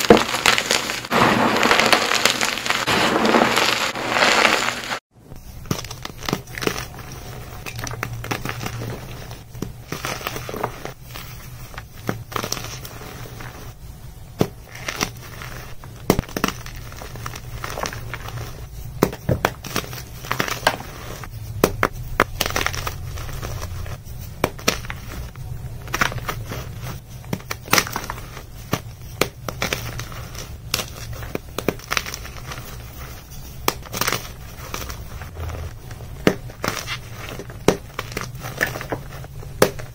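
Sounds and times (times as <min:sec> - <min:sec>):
chalk blocks crunching by hand: 0:00.0 - 0:05.0, 0:14.4 - 0:39.9.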